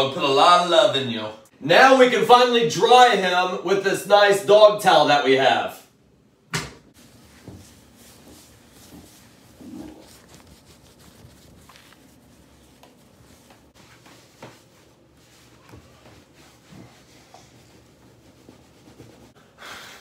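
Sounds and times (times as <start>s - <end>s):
towel scrubbing wet fur: 7.0s - 19.4s.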